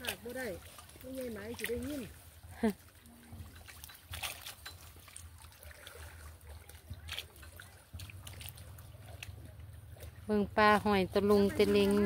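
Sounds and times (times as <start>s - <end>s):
water dripping and splashing: 0.0s - 12.0s.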